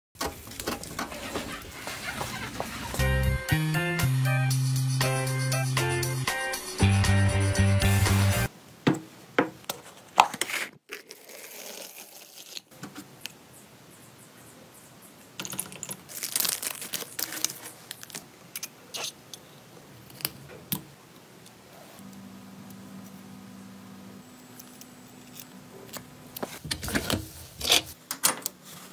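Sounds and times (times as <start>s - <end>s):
faint steady hum: 17.1s - 27.9s.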